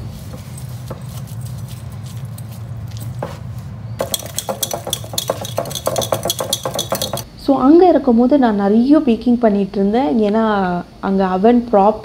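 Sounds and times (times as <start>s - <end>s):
whisk squelching in batter: 0.0s - 7.2s
wire whisk clinking against glass: 4.0s - 7.2s.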